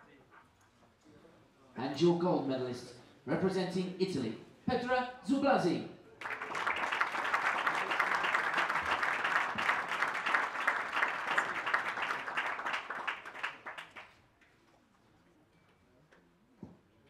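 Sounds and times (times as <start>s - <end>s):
audience applauding: 6.2s - 14.2s.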